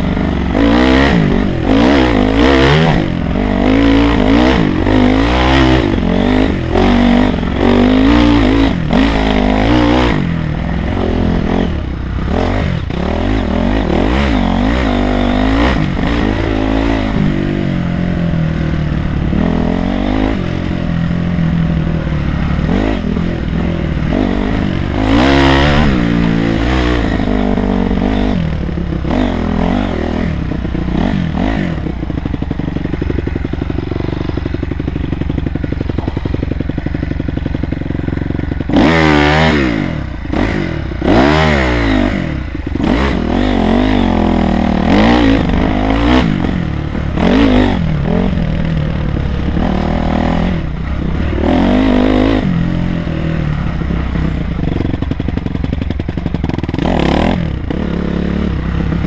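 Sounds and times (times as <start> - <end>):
motorcycle engine revving: 0.0 - 59.0
bike clatter over bumps: 19.1 - 57.8.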